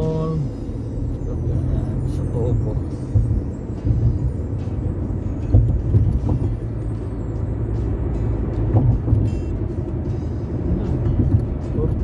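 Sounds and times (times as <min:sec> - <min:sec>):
road and tyre rumble: 0:00.0 - 0:12.0
low thumps: 0:02.9 - 0:12.0.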